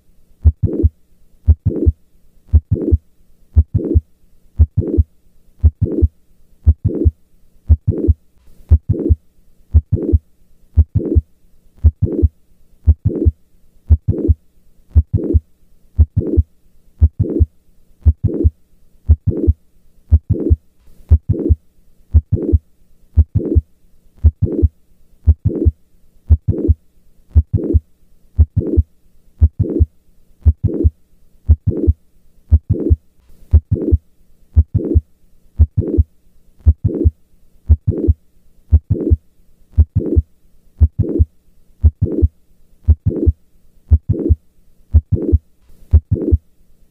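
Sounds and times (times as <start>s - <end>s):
heartbeat with click and murmur: 0.4s - 0.9s, 1.5s - 3.0s, 3.6s - 4.0s, 4.6s - 7.1s, 7.7s - 10.2s, 10.8s - 11.2s, 11.8s - 12.3s, 12.9s - 13.3s, 13.9s - 15.4s, 16.0s - 16.4s, 17.0s - 18.5s, 19.1s - 22.6s, 23.2s - 23.6s, 24.2s - 25.7s, 26.3s - 27.8s, 28.4s - 28.8s, 29.4s - 34.0s, 34.6s - 35.0s, 35.6s - 37.1s, 37.7s - 39.2s, 39.8s - 46.4s.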